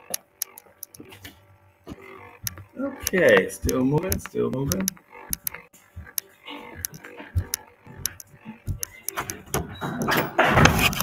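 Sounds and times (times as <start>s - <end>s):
device handling clicks and rustling: 6.8s - 11.0s.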